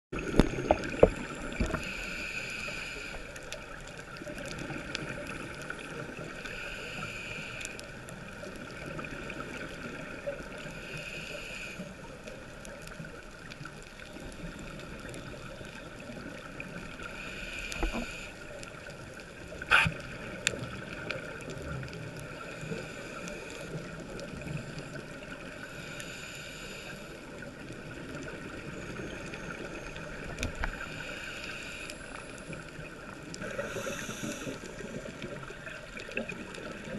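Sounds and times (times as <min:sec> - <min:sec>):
muffled rush of water: 0:00.2 - 0:36.9
regulator breaths: 0:17.1 - 0:18.5.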